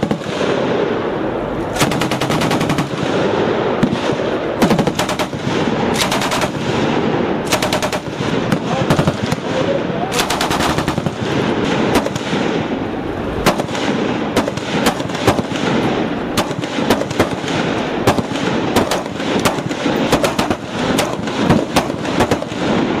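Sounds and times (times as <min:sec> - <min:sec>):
heavy machine-gun fire: 0:00.0 - 0:23.0.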